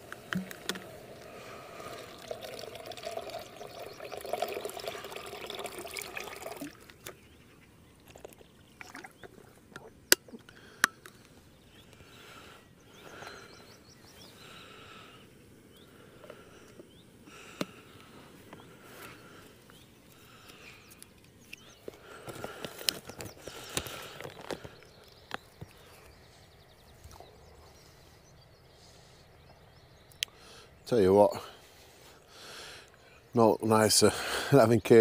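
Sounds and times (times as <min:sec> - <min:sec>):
faint chirps: 0:00.2 - 0:35.0
liquid pouring into container: 0:00.3 - 0:07.1, 0:08.7 - 0:09.4.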